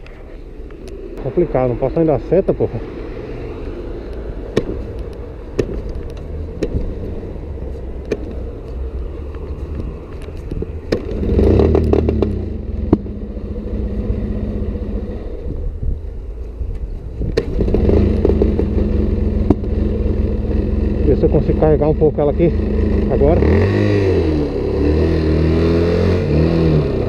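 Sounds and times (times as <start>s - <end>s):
engine clicks and pops: 4.6s - 6.9s, 9.8s - 13.1s, 17.3s - 18.8s, 19.4s - 19.8s.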